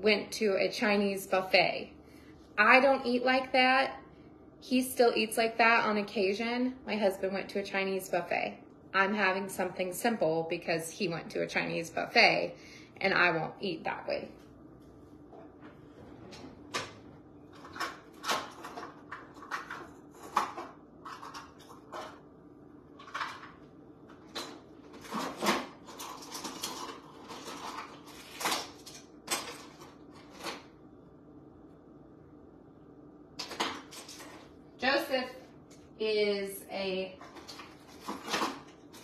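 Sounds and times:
faint steady hum: 0:00.0 - 0:39.0
drawers and cupboards opening and shutting: 0:15.4 - 0:22.2.

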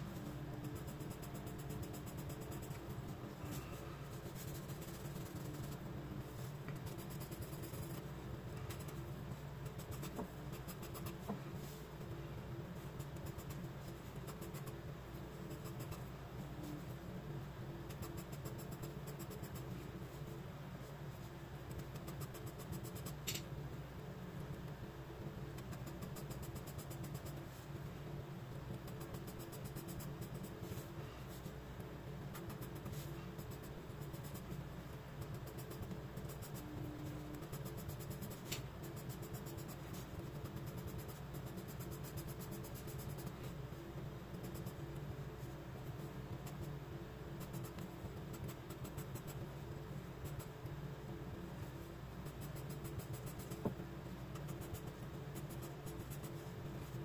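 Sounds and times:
steady low hum: 0:00.0 - 0:57.0
pencil scratching on paper: 0:04.2 - 0:05.8.

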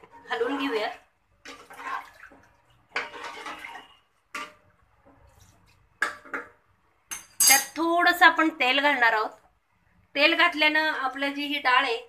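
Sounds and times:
spoon stirring water in pot: 0:00.0 - 0:07.6.

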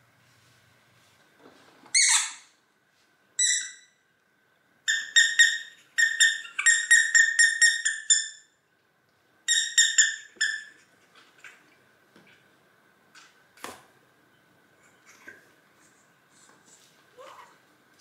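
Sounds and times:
squeaky toy squeaking: 0:01.9 - 0:02.5, 0:03.4 - 0:03.9, 0:04.9 - 0:08.5, 0:09.5 - 0:10.7.

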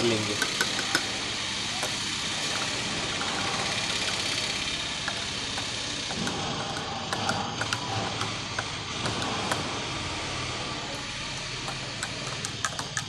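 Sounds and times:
engine-like running noise: 0:00.0 - 0:13.0
stirrer clinking against glass: 0:00.4 - 0:01.1, 0:05.0 - 0:09.6, 0:11.6 - 0:13.0.

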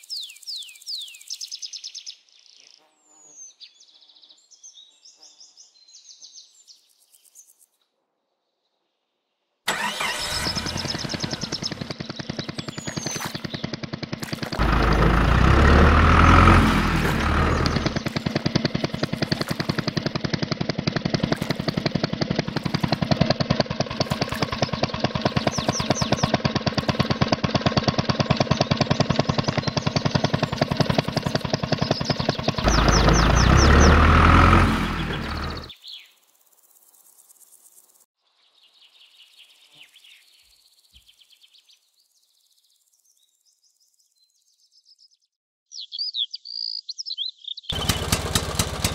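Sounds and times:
tractor engine chugging: 0:09.7 - 0:35.7, 0:47.7 - 0:48.9.

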